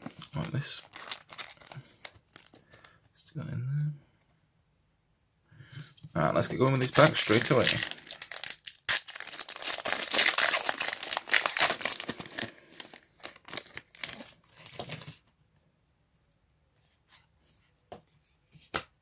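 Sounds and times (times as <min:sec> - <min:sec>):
foil wrapper crinkling and tearing: 0:00.0 - 0:03.0, 0:06.6 - 0:15.2.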